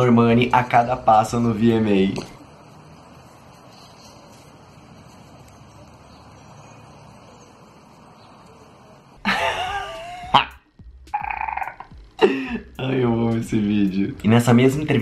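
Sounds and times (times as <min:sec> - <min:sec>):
man laughing loudly: 0:09.2 - 0:12.8.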